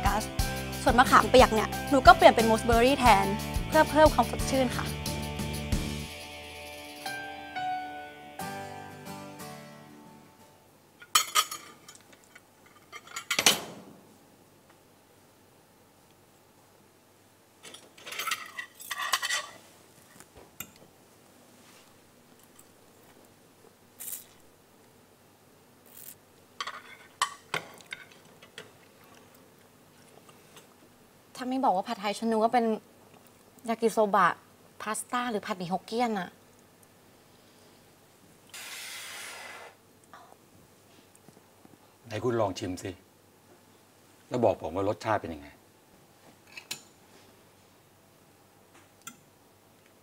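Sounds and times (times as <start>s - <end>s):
soft piano-like music: 6.5s - 10.6s
cutlery clinking on a plate: 11.0s - 13.6s, 17.6s - 19.6s
short hiss: 38.5s - 39.8s.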